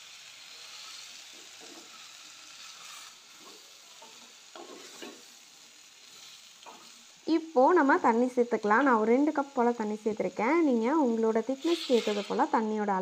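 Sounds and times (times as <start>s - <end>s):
vegetables sizzling in oil: 0.0s - 13.0s
spatula scraping a pot: 0.8s - 5.3s, 11.6s - 12.5s.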